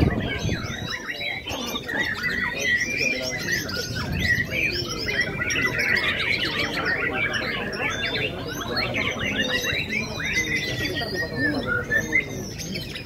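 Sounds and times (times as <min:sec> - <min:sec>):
many birds singing: 0:00.0 - 0:13.0.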